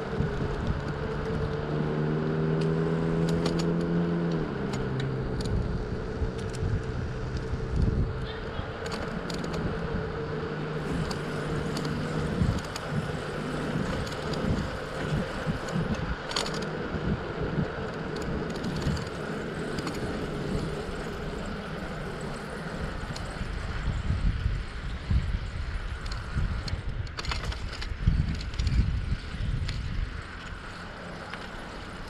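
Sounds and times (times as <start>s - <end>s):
road noise: 0.0s - 32.0s
steady low hum: 0.0s - 32.0s
wind buffeting microphone: 0.0s - 32.0s.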